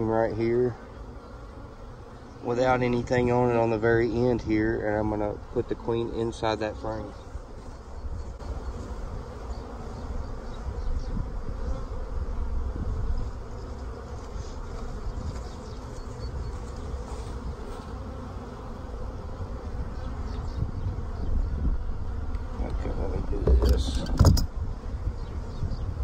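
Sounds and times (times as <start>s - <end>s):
honeybees buzzing: 0.0s - 26.0s.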